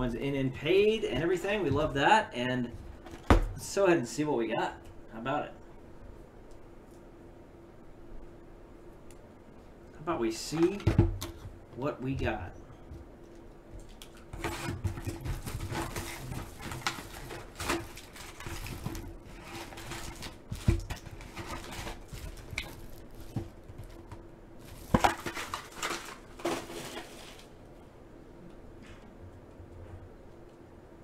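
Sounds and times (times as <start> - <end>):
shrink wrap crinkling and tearing: 13.8 - 27.5
foil packs handled: 13.9 - 27.6.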